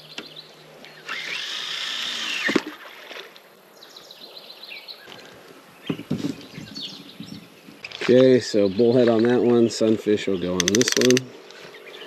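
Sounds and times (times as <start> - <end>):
fishing reel spool whirring: 1.0 - 2.6.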